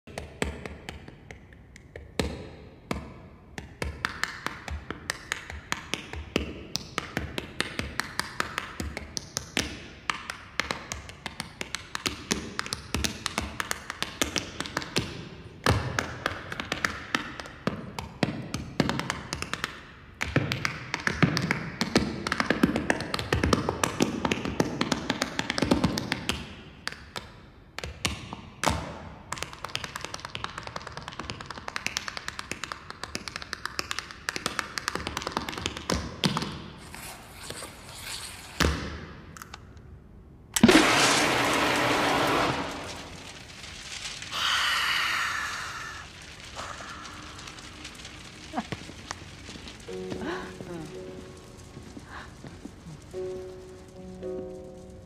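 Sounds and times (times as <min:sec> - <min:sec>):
tap shoes on stage floor: 0:00.1 - 0:36.6
music: 0:49.9 - 0:55.0.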